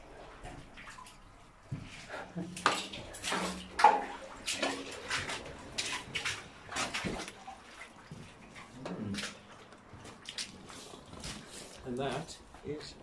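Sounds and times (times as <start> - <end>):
footsteps on rubble: 9.6 - 12.7.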